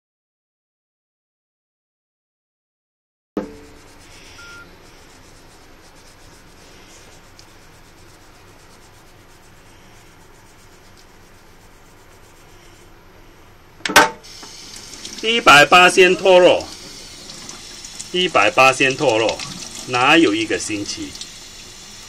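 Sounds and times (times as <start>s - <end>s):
toothbrush bristles rubbing: 3.6s - 13.0s, 14.3s - 21.5s.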